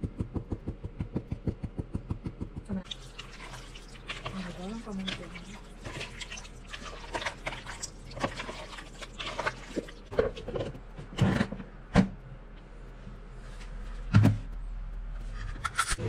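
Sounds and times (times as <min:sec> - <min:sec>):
wet squishing of hands mixing: 0:02.7 - 0:10.9.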